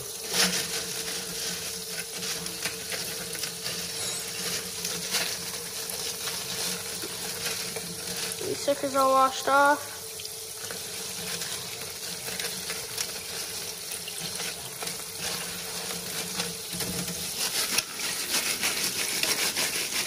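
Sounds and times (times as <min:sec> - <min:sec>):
tap water splashing: 0:04.4 - 0:20.0.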